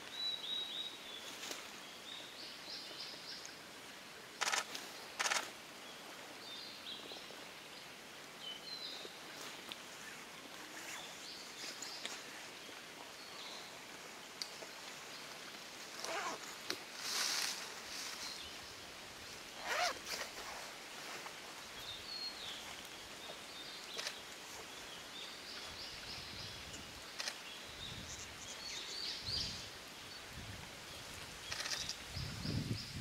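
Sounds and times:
woodpecker bill scraping wood: 19.6 - 20.6.

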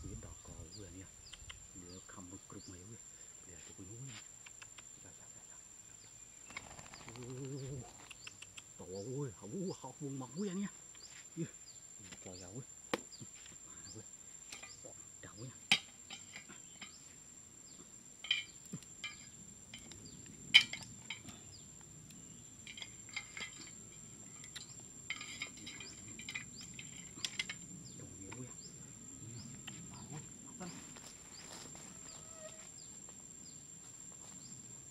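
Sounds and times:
bamboo sticks clicking and tapping: 14.5 - 14.7, 15.6 - 17.0, 24.4 - 27.7.

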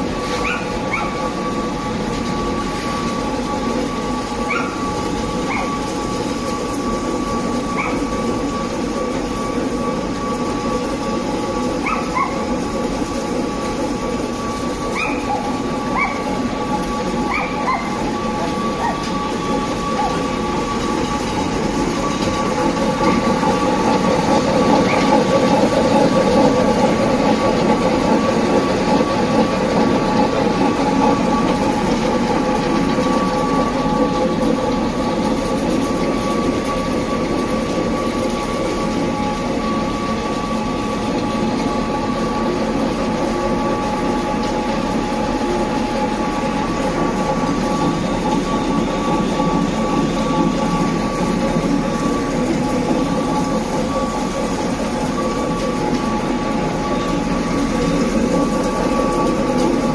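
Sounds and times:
pellet mill rattling: 0.0 - 59.9.

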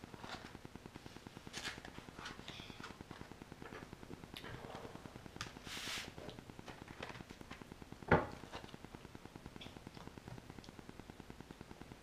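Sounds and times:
utensil scraping: 5.6 - 6.3.

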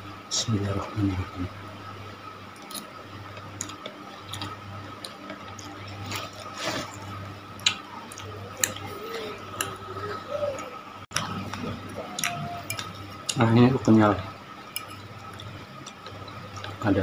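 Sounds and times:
steady low hum: 0.0 - 17.0
wet mouth chewing sounds: 2.6 - 9.8.

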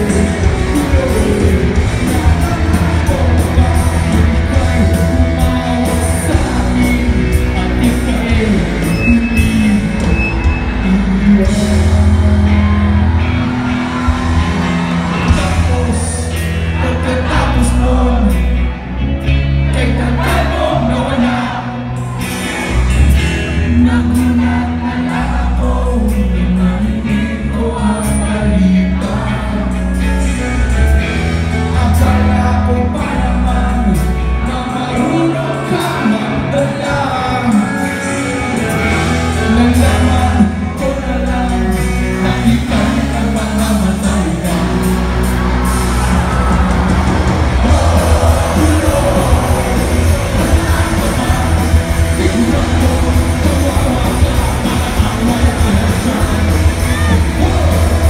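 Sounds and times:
man singing into a microphone: 0.0 - 13.1, 15.3 - 18.8, 19.6 - 21.9, 23.5 - 45.2, 47.6 - 58.0
heavy bass: 0.0 - 58.0
rock band playing: 0.0 - 58.0
crowd shouting: 10.0 - 19.0, 44.1 - 58.0.

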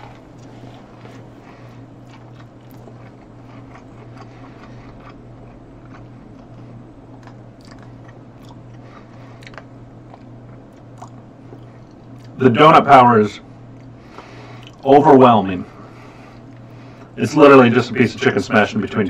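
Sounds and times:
low microphone hum: 0.0 - 19.0
mouth chewing wet smacks: 2.0 - 12.4, 13.8 - 14.9.

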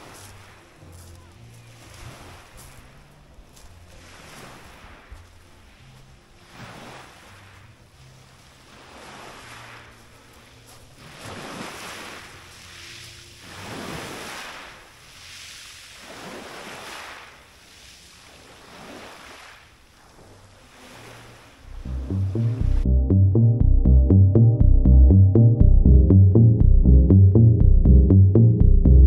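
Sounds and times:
waves washing up a pebble beach: 3.9 - 5.1, 8.5 - 21.5.

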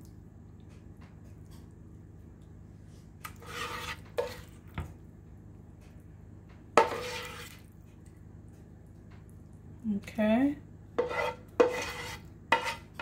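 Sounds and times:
utensil scraping and clanking pan: 3.2 - 4.6, 6.8 - 7.6, 11.0 - 13.0.

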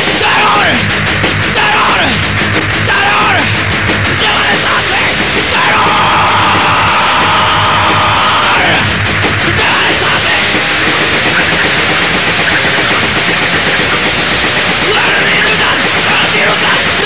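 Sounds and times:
shouted vocal: 0.0 - 10.6, 14.8 - 17.0
loud fast punk band playing: 0.0 - 17.0.

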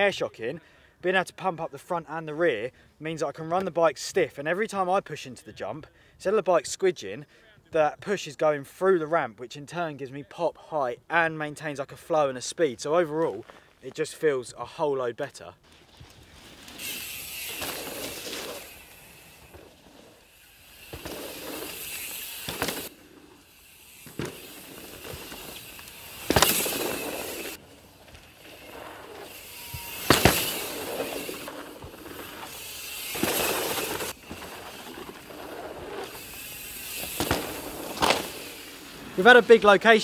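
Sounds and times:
bike tyres rolling over dirt: 13.1 - 14.1, 15.5 - 40.0
thuds of bike landings: 20.9 - 22.9, 24.0 - 28.3, 29.7 - 32.2, 36.9 - 38.6.

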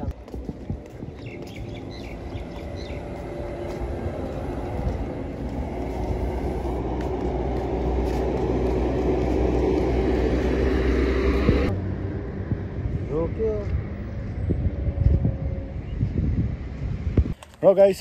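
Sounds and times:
truck diesel engine rumbling: 1.7 - 14.1.

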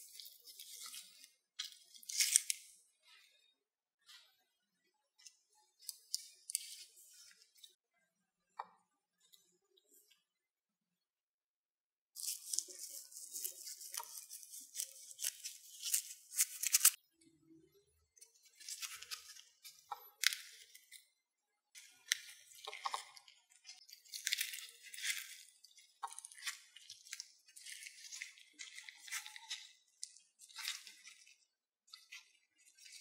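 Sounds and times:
crinkling and rustling: 0.0 - 3.4, 5.2 - 7.8, 12.2 - 17.0, 18.3 - 21.0, 21.8 - 33.0.

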